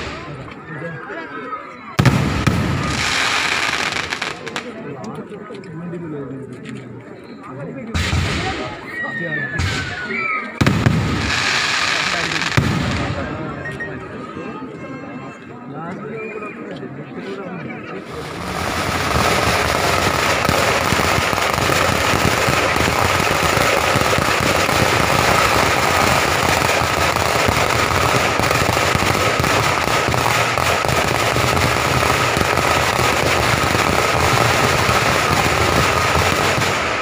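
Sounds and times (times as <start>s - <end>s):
firecrackers crackling: 0.0s - 0.6s, 2.0s - 4.8s, 9.6s - 13.5s, 18.0s - 37.0s.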